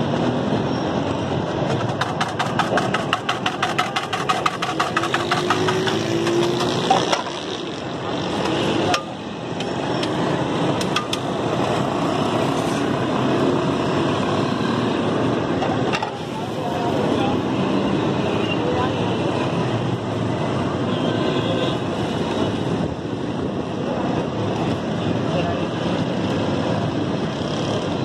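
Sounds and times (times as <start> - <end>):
street and traffic noise: 0.0 - 28.0
metal spatula clattering on griddle: 1.7 - 7.3.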